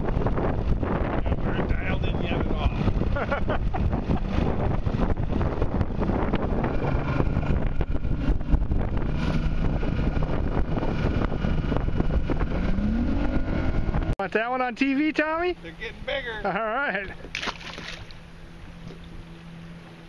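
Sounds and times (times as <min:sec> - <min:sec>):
wind buffeting microphone: 0:00.0 - 0:14.2
outboard engine drone: 0:00.0 - 0:20.0.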